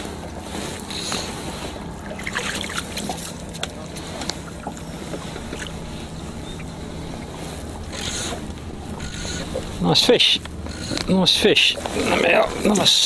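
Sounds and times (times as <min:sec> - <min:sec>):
low steady hum: 0:00.0 - 0:13.0
water lapping against boat: 0:00.0 - 0:13.0
wind: 0:00.0 - 0:13.0
fish splashing at surface: 0:02.1 - 0:09.8.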